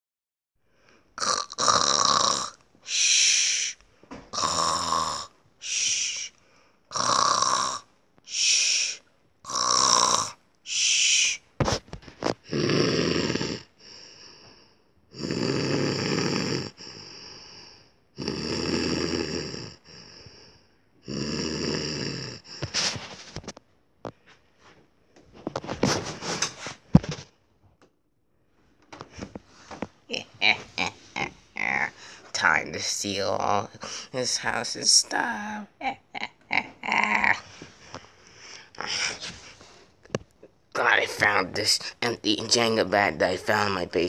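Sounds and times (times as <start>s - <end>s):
person imitating snoring: 1.2s - 11.4s, 12.4s - 14.1s, 15.1s - 23.0s, 30.1s - 32.0s, 35.4s - 37.5s.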